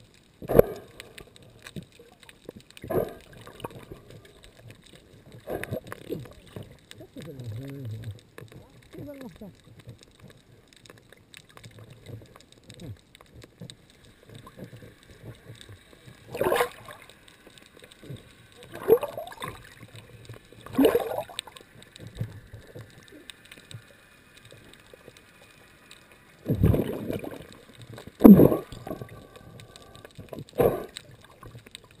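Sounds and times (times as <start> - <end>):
underwater water gurgling: 0.0 - 32.0.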